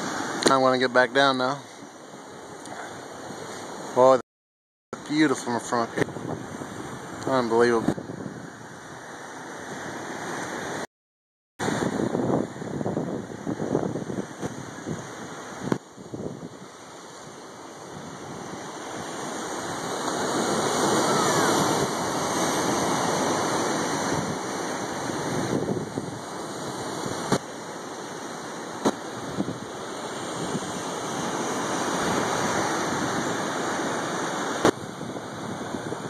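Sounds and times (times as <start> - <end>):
ocean surf breaking on rocks: 0.0 - 4.2, 5.0 - 10.9, 11.6 - 36.0
wind on microphone: 5.8 - 10.8, 11.6 - 27.5, 28.6 - 36.0.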